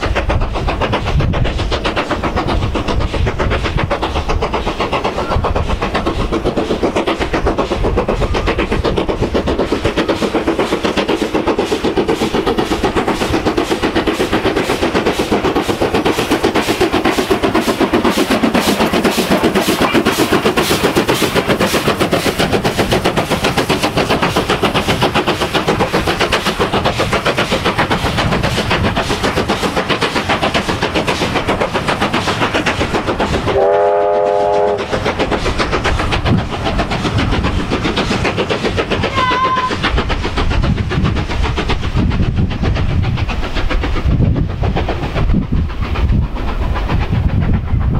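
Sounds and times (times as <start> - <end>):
steam locomotive exhaust beating: 0.0 - 47.9
train wheels running over rails: 0.0 - 47.9
steam whistle blast: 33.6 - 34.8.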